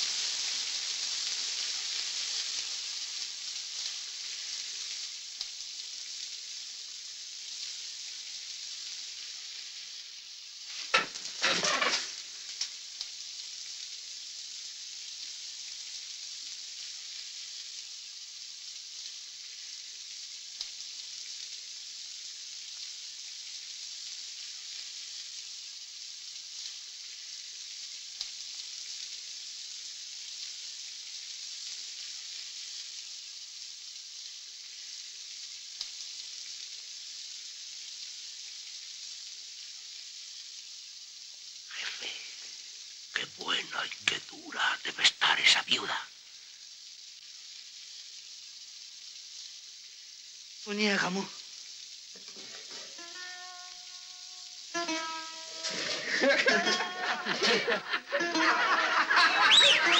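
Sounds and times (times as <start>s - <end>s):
film soundtrack hiss: 0.0s - 59.9s
burst of noise: 10.8s - 12.6s.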